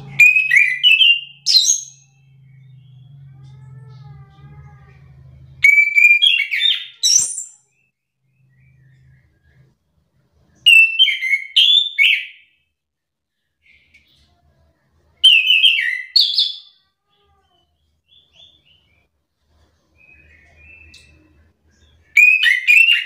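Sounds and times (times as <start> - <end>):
thrush singing whistled notes: 22.1 - 23.0.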